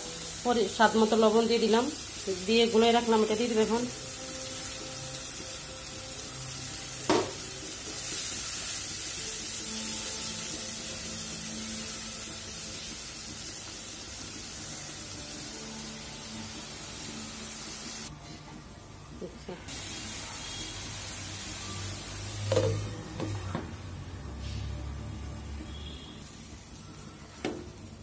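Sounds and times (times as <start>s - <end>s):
spice paste sizzling in oil: 0.0s - 18.1s, 19.7s - 22.9s, 25.7s - 28.0s.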